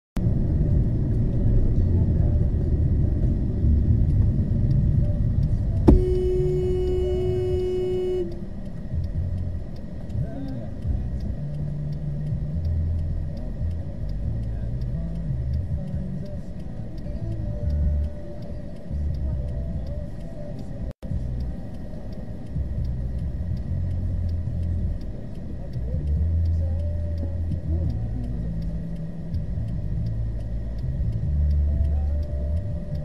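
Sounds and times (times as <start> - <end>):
engine and traffic rumble: 0.2 - 33.0
car horn: 5.8 - 8.6.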